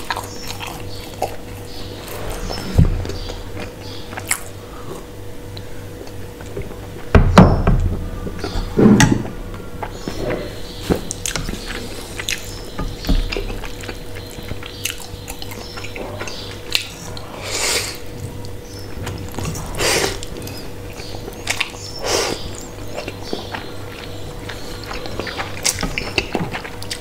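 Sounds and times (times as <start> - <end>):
faint steady hum: 0.0 - 27.0
wet chewing: 18.4 - 27.0.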